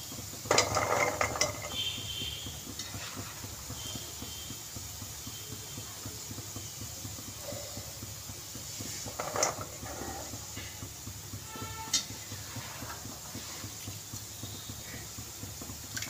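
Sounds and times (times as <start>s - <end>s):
fried pieces rattling: 0.5s - 1.8s
metal skimmer clattering against pan: 0.5s - 1.8s.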